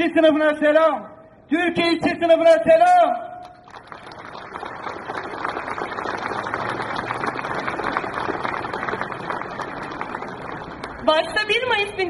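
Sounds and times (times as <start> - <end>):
crowd applauding: 3.4 - 11.3.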